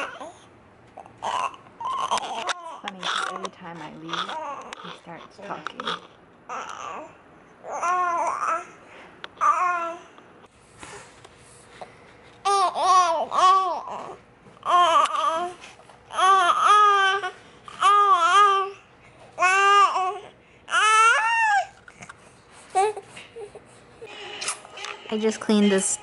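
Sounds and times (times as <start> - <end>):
baby babbling and cooing: 0.0 - 3.4, 4.1 - 8.8, 9.4 - 10.2, 12.4 - 21.8, 22.7 - 23.6.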